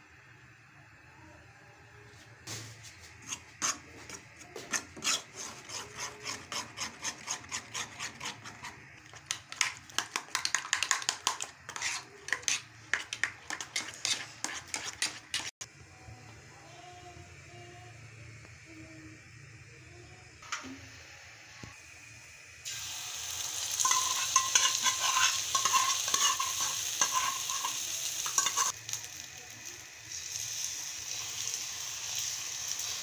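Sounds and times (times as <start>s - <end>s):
spoon scraping metal pan: 3.2s - 15.5s, 23.8s - 28.8s.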